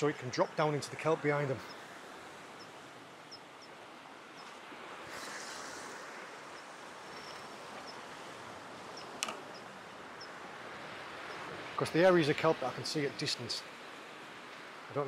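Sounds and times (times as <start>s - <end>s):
wind and sea hiss: 0.0s - 15.0s
faint high chirp: 6.6s - 8.0s.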